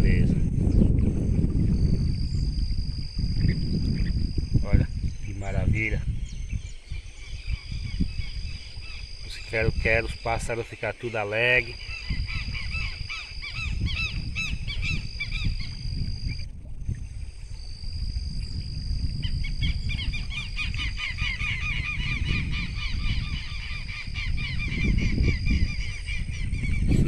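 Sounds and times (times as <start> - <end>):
lapwings calling: 6.1 - 15.8, 19.3 - 26.9.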